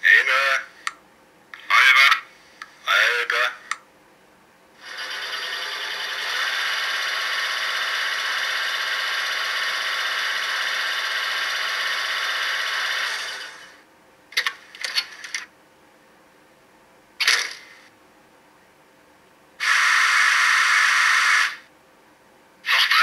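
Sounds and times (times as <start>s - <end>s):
steady mechanical whirr: 4.8s - 15.4s, 19.6s - 21.7s.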